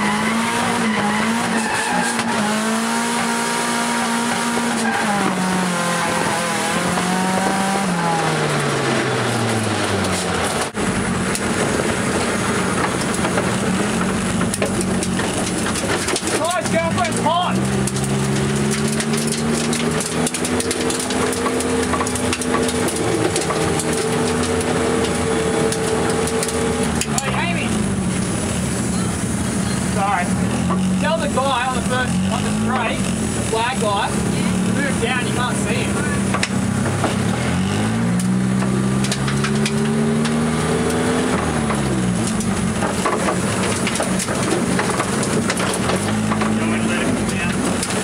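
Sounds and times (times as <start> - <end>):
car engine running steadily: 0.0 - 48.0
clicks and rattles: 12.7 - 27.4, 38.2 - 48.0.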